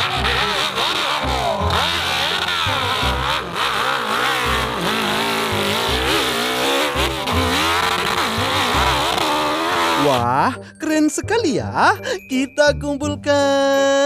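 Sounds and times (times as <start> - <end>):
dirt bike engine revving: 0.0 - 10.3.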